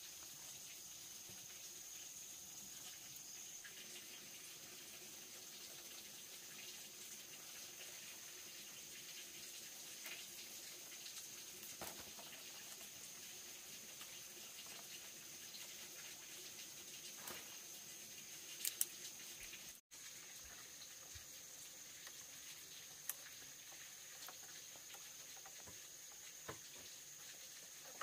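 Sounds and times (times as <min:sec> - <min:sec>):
bamboo strips ticking and rustling: 0:05.6 - 0:28.0.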